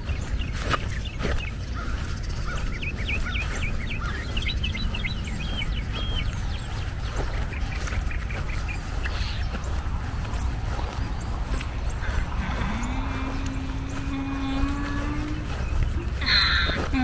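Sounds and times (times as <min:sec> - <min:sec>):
bird chirping: 0:00.0 - 0:17.0
steady low rumble: 0:00.0 - 0:17.0.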